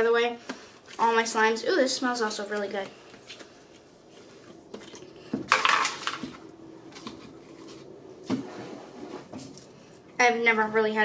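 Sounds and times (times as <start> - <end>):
plastic clatter and rustle: 4.5 - 8.5
plastic crinkling and knocks: 4.7 - 7.4.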